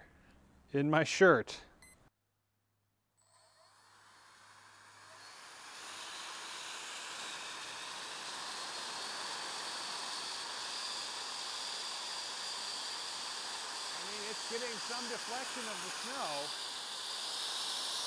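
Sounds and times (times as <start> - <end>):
electric fan blowing air: 4.0 - 18.0.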